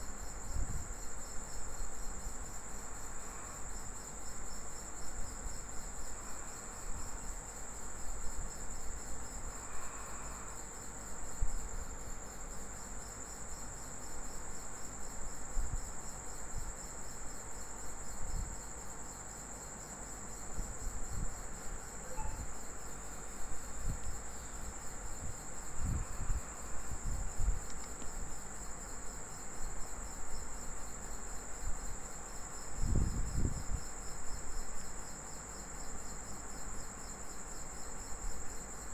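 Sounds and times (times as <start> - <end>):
high-pitched insect chirring: 21.9 - 22.8.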